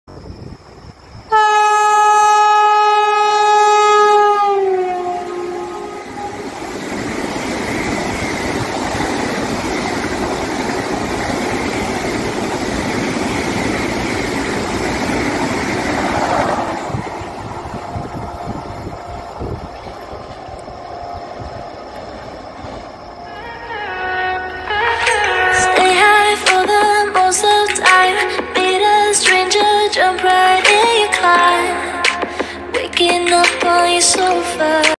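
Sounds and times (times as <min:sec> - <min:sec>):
rushing wheel and rail noise: 0:00.1 - 0:34.9
train horn blast: 0:01.3 - 0:06.8.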